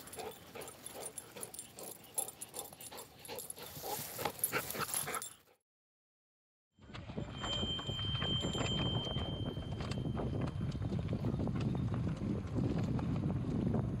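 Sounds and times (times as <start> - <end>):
rustling through dry grass: 2.4 - 5.2.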